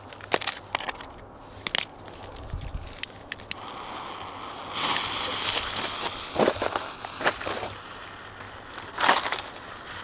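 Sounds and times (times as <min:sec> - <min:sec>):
firework fountain hissing: 0:03.5 - 0:10.0.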